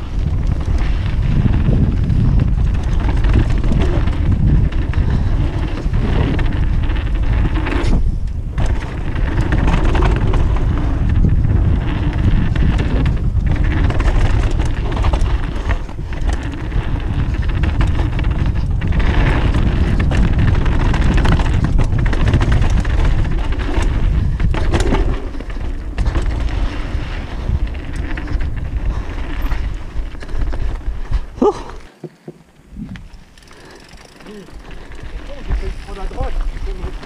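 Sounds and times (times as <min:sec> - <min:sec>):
wind buffeting microphone: 0:00.0 - 0:31.8, 0:32.6 - 0:37.0
tyres rumbling on dirt: 0:00.0 - 0:32.4, 0:33.1 - 0:37.0
bike rattling and knocking: 0:00.0 - 0:37.0.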